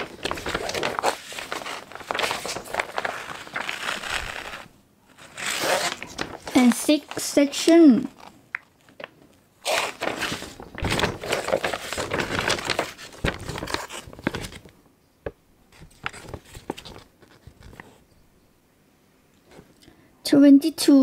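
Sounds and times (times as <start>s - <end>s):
paper sheets rustling: 0.0s - 18.0s.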